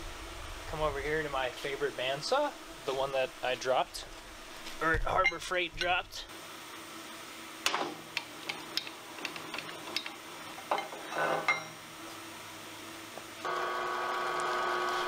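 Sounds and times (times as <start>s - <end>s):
bandsaw motor humming: 13.4s - 15.0s.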